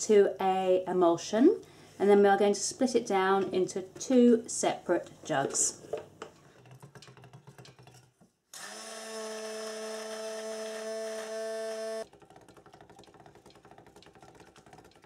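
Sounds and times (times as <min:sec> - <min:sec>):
stick blender motor whine: 0:08.6 - 0:12.1.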